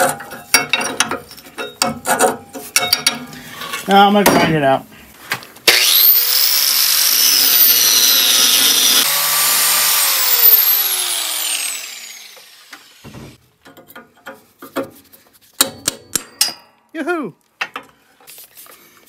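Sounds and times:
angle grinder whining: 5.7 - 13.4
grinder grinding steel bar: 5.7 - 13.4.

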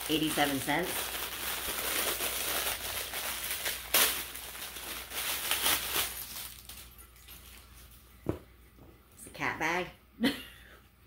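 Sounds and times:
packaging crinkling and rustling: 0.0 - 8.0.

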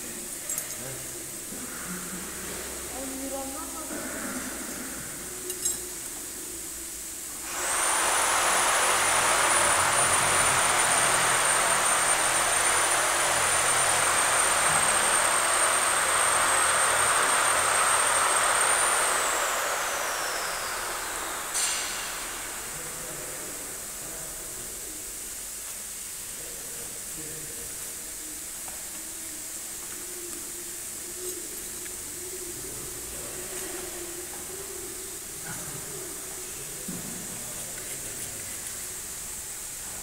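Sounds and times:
high-speed machine whine: 0.0 - 40.0.

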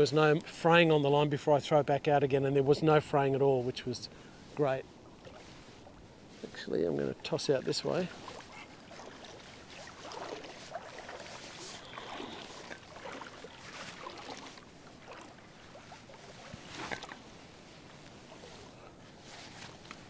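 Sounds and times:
water sloshing around wading legs: 4.3 - 20.0
water splash: 7.8 - 17.4.

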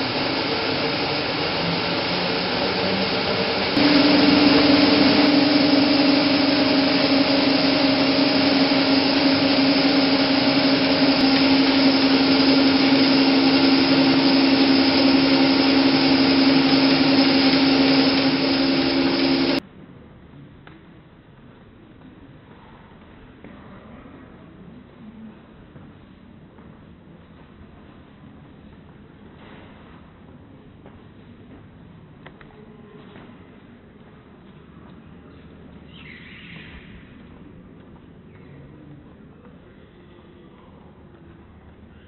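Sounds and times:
film projector whirring with hum: 0.0 - 19.6.

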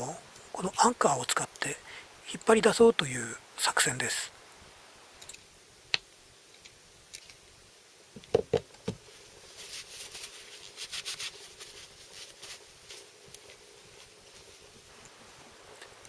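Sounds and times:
tissue rustling: 9.1 - 15.0.

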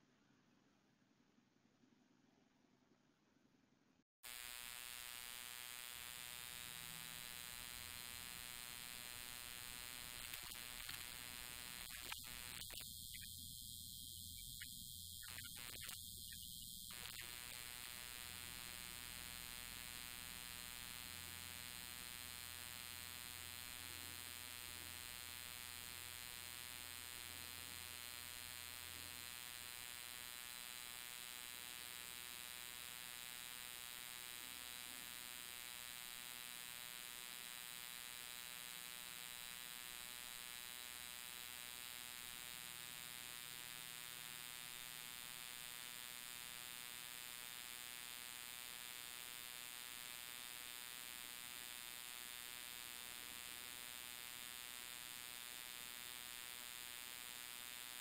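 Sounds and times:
electrical hum and buzz: 4.3 - 30.0.

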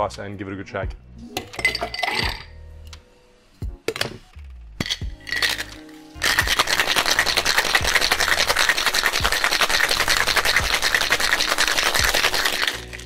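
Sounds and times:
ice rattling in a shaker: 4.8 - 13.0.

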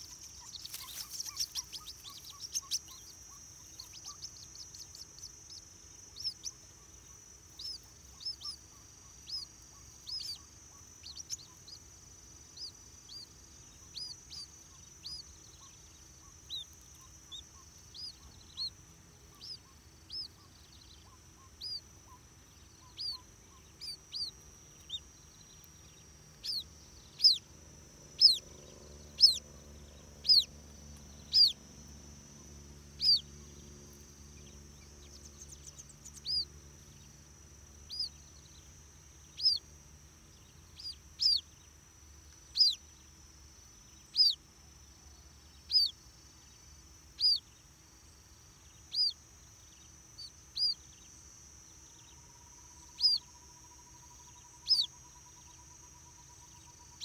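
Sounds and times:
chicks peeping: 0.0 - 5.6, 26.3 - 27.4, 28.2 - 29.4, 30.2 - 30.5, 31.2 - 31.6, 33.0 - 33.2.

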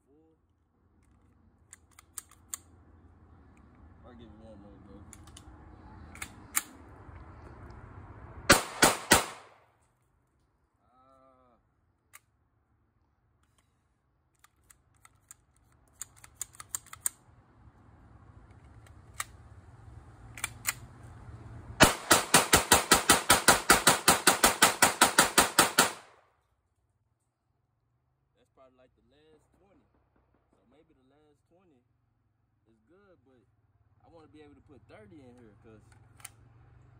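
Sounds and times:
pistol shots: 8.5 - 9.6, 21.8 - 26.2.

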